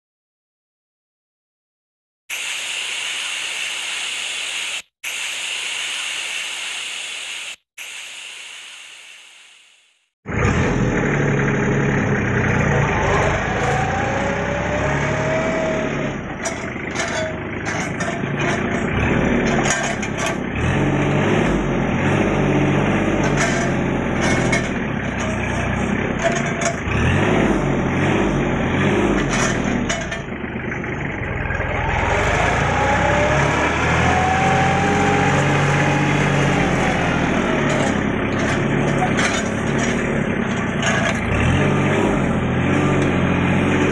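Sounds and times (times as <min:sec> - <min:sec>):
hissing intro sound effect: 0:02.3 - 0:10.0
tractor diesel engine running: 0:10.3 - 0:43.9
crane grabber clanks and knocks: 0:16.2 - 0:20.8, 0:22.9 - 0:30.7, 0:37.3 - 0:43.9.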